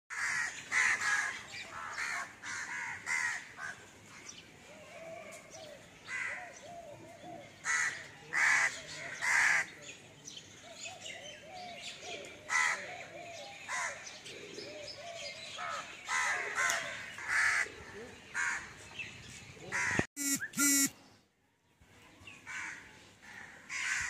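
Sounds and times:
crows cawing: 0.1 - 3.8, 22.5 - 24.0.

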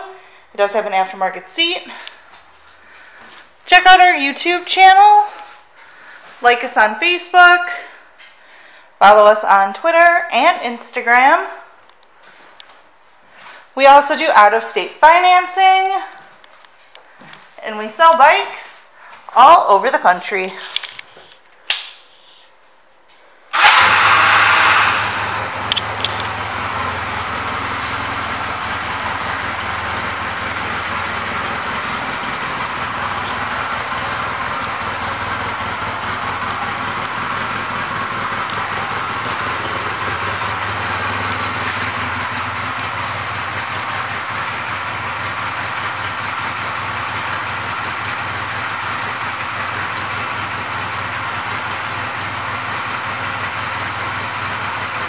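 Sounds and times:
motorcycle engine starting and idling: 23.5 - 55.0.

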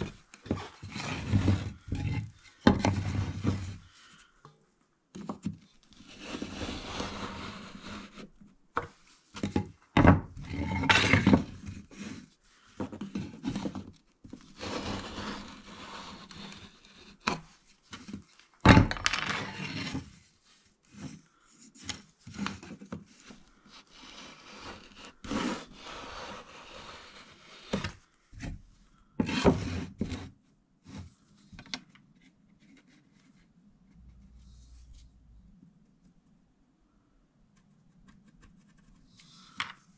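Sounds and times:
wood scraping and knocking on wood: 0.0 - 3.9, 5.2 - 20.1, 21.8 - 28.6, 29.2 - 30.3.

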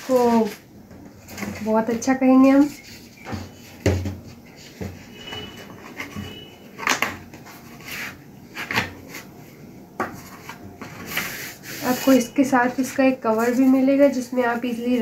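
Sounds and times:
cardboard scraping: 0.0 - 9.4, 10.1 - 15.0.

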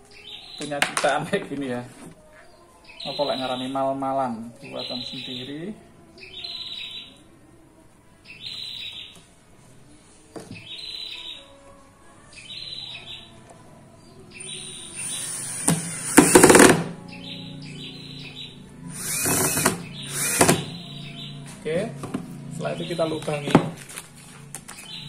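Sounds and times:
bird chirping: 2.2 - 7.3, 8.2 - 9.3, 10.5 - 11.6, 12.3 - 16.2, 17.0 - 23.5, 24.8 - 25.0
cordless drill boring wood: 14.9 - 16.8, 18.9 - 20.7.

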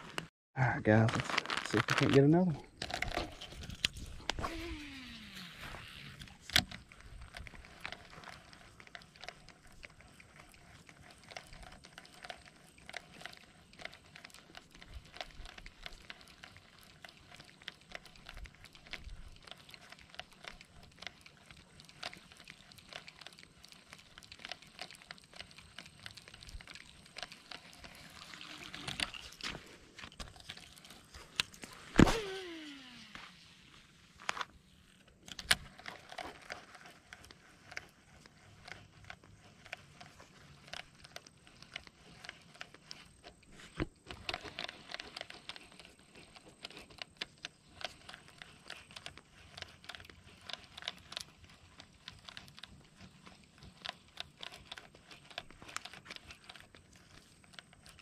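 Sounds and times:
faint irregular reel ticking: 2.7 - 31.8
fishing reel spool whirring: 2.8 - 29.5, 30.1 - 33.7
small water splashes: 18.9 - 33.5.

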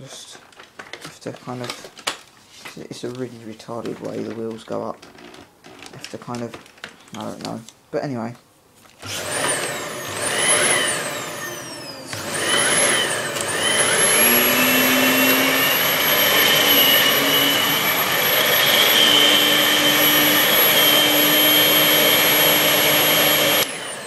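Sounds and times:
vacuum cleaner motor whine: 9.0 - 24.0.

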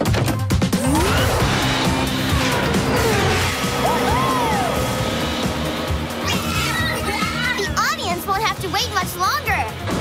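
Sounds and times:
cartoon background music: 0.0 - 10.0.

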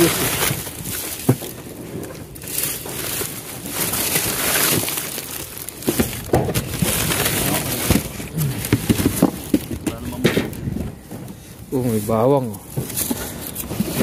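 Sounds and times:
rummaging through rustling rubbish: 0.0 - 14.0.

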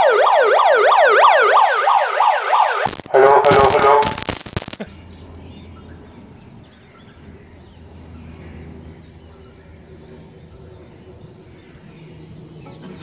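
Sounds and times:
small birds chirping: 4.8 - 13.0.

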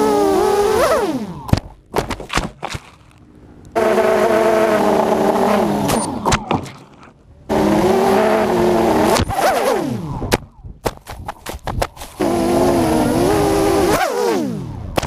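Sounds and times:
quadcopter motors whining: 0.0 - 1.5, 3.7 - 6.3, 7.5 - 10.3, 12.0 - 15.0.

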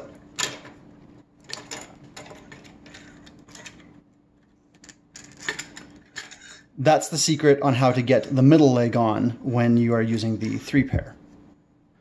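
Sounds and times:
faint steady hum: 0.0 - 12.0
plastic parts clicking and scraping: 1.5 - 6.6.

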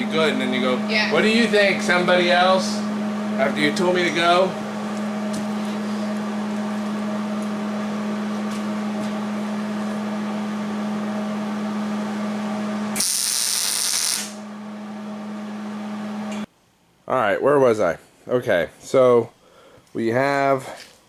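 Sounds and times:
electrical hum: 0.0 - 16.5
welding arc crackling and hissing: 12.9 - 14.4.

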